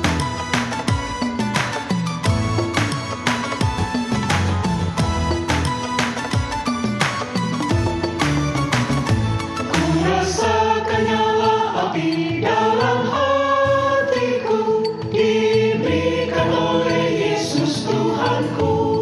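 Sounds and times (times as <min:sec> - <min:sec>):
mixed choir singing: 0:09.7 - 0:19.0.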